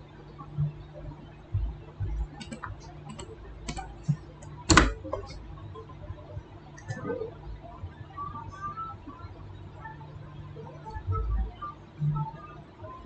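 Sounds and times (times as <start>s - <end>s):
faint steady hum: 0.0s - 13.0s
computer keyboard clicks: 2.4s - 5.4s.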